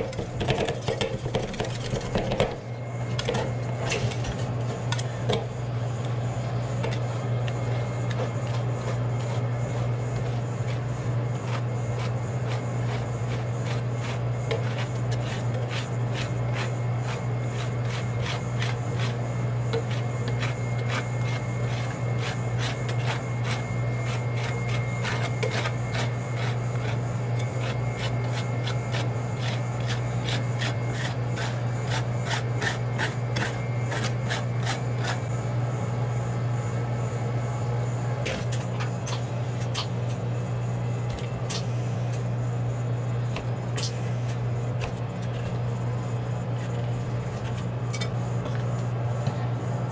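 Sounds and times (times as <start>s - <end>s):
steady low hum: 0.0s - 49.9s.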